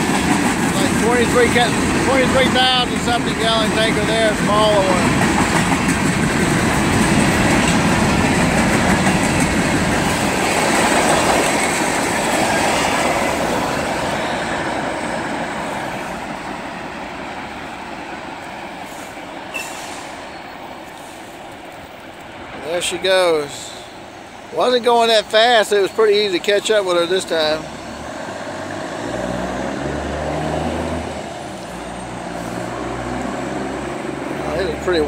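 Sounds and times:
freight train wheels clattering: 0:00.0 - 0:17.5.

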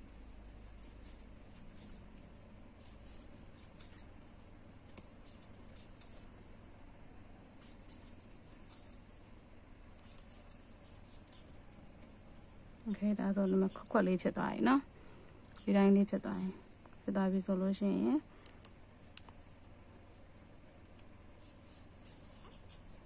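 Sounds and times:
crochet hook scratching yarn: 0:00.0 - 0:06.4, 0:07.6 - 0:13.0, 0:21.3 - 0:23.0
steady low hum: 0:00.0 - 0:23.0.

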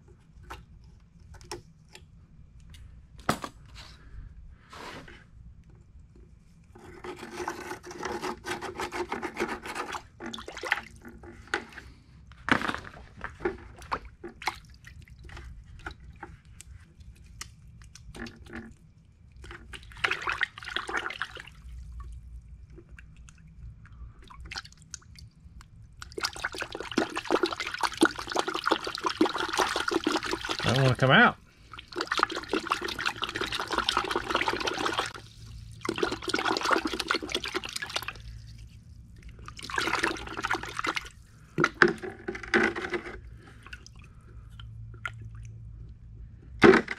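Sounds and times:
water splashing in bucket: 0:09.9 - 0:11.7, 0:12.5 - 0:15.9, 0:19.4 - 0:23.4, 0:26.0 - 0:38.6, 0:39.2 - 0:42.8.

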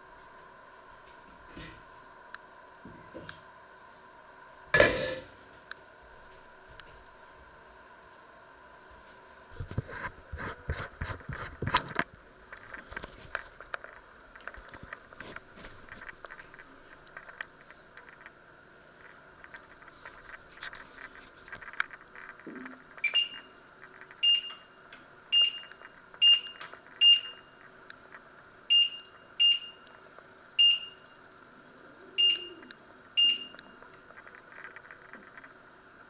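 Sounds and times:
hob touch control beeps: 0:23.0 - 0:23.5, 0:24.2 - 0:24.6, 0:25.3 - 0:27.4, 0:28.7 - 0:29.9, 0:30.6 - 0:31.0, 0:32.2 - 0:33.6.

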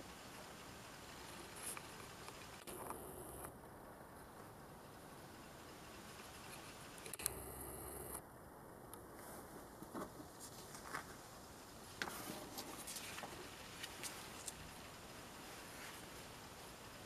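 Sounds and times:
low hum: 0:00.0 - 0:09.8
camera click: 0:06.5 - 0:08.2
paper booklet rustling: 0:09.2 - 0:11.2, 0:12.0 - 0:14.6.

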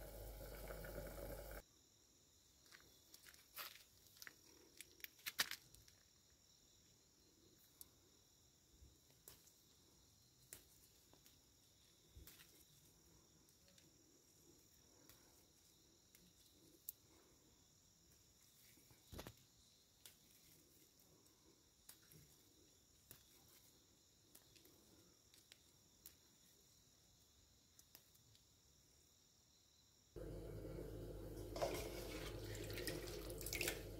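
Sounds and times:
crickets chirring: 0:00.0 - 0:33.9.

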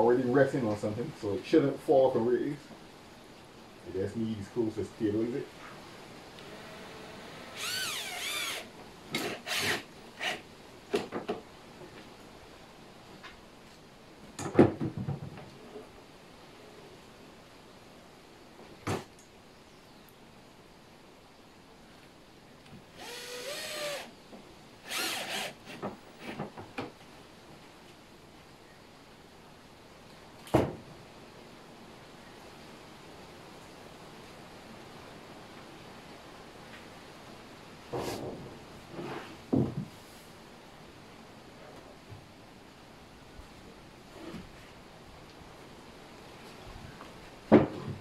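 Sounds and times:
cordless drill driving screws: 0:06.4 - 0:10.4, 0:23.0 - 0:24.1, 0:24.8 - 0:25.8.

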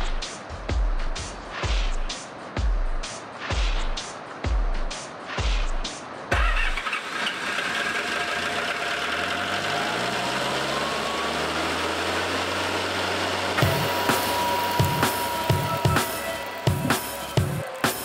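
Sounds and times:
loader engine running: 0:06.4 - 0:17.6.

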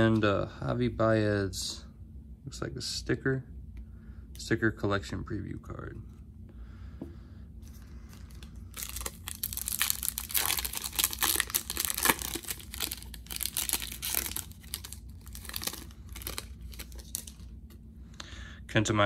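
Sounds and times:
wrapper crinkling and tearing: 0:08.1 - 0:17.5.

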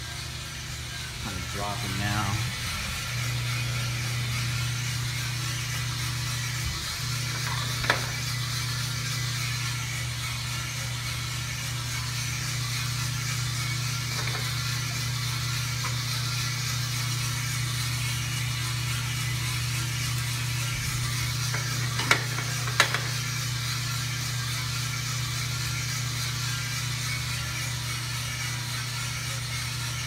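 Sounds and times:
drum motor hum: 0:00.0 - 0:30.0.

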